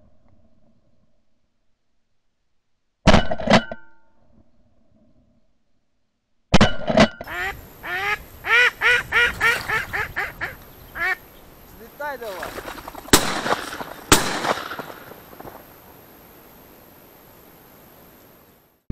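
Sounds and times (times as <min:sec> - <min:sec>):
duck quacking: 0:07.3 - 0:14.9
shotgun shots: 0:12.2 - 0:15.6.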